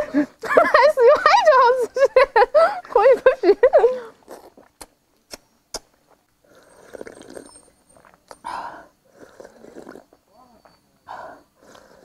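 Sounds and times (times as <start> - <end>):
slurping: 4.1 - 8.5, 9.1 - 10.8, 11.6 - 12.0
chewing: 4.2 - 8.4, 9.2 - 10.8, 11.6 - 12.0.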